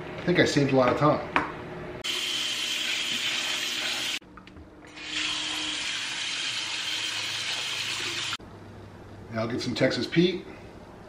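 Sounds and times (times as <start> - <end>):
faucet water splashing into colander: 5.0 - 8.4.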